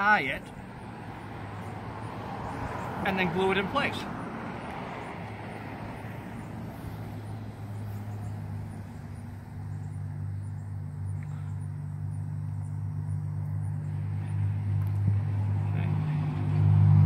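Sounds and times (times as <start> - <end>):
low motor hum: 4.6 - 17.0.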